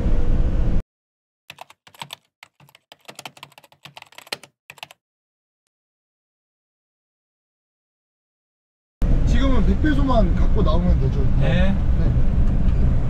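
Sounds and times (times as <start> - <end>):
keyboard key clicks: 1.5 - 5.0.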